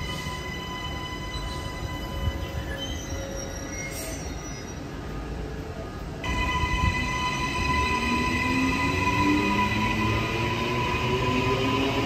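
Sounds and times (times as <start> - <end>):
train rumbling along rails: 0.0 - 12.0
high-pitched wheel squeal: 0.9 - 5.0.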